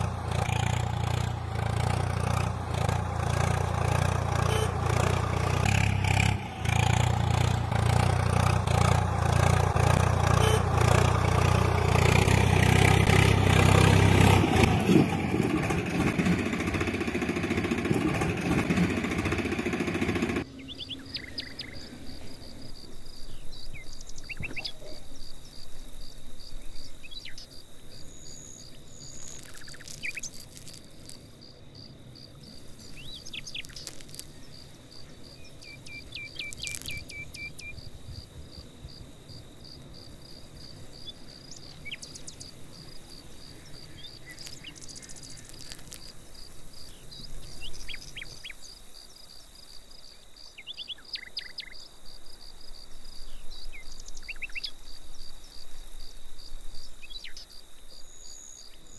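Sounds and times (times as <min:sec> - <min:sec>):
insect calling high pulse: 0:00.0 - 0:58.9
short bird chirps: 0:20.6 - 0:22.5, 0:23.2 - 0:25.1, 0:26.8 - 0:30.7, 0:32.8 - 0:37.9.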